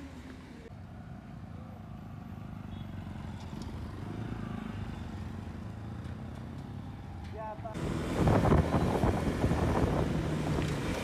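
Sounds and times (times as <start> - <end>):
motorcycles riding past: 1.0 - 7.1.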